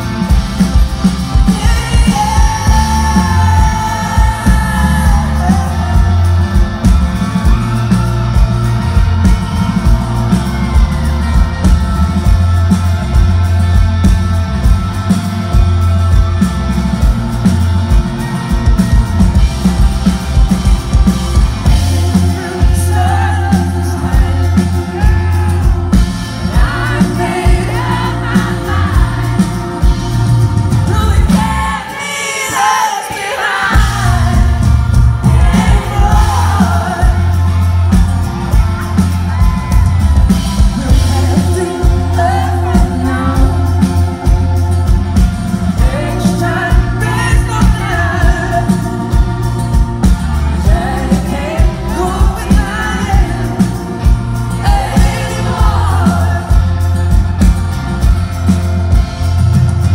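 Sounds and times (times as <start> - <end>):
bass: 0.0 - 59.9
drums: 0.0 - 59.9
guitar: 0.0 - 59.9
keyboards: 0.0 - 59.9
male lead vocal: 1.3 - 7.9, 21.6 - 38.6, 40.5 - 44.7, 45.6 - 57.4.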